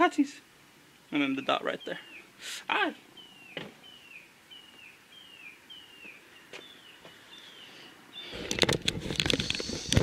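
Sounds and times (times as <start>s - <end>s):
small bird chirping: 1.0s - 8.6s.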